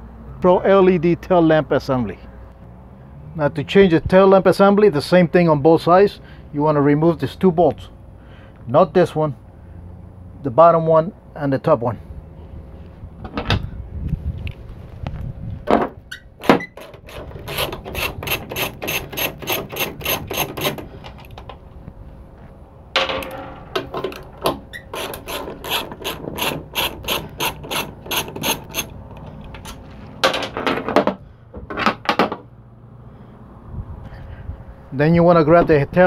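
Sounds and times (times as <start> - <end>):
socket ratchet clicking: 16.4 - 21.4, 23.8 - 29.8.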